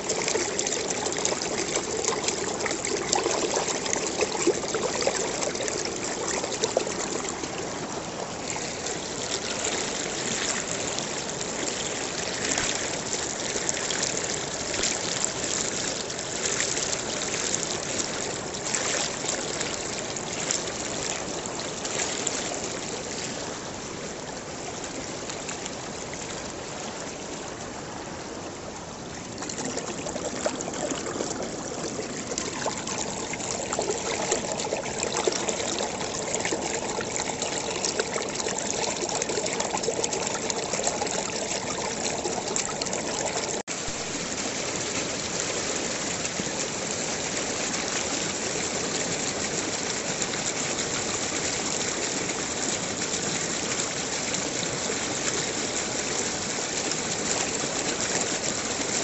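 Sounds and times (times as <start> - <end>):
water trickling and splashing: 0.0 - 59.0.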